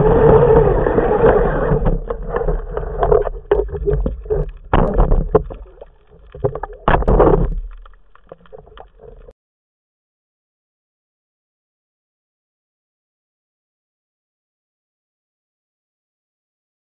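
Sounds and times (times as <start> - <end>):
water churning and bubbling: 0.0 - 9.3
sharp knocks underwater: 1.0 - 9.3.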